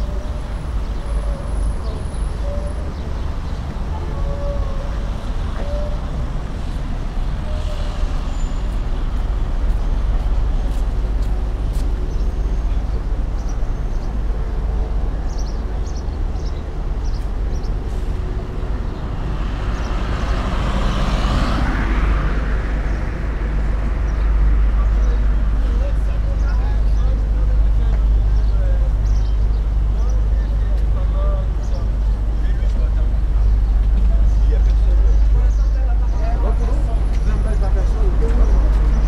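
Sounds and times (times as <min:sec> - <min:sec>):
traffic rumble: 0:00.0 - 0:39.0
car passing close by: 0:19.5 - 0:22.6.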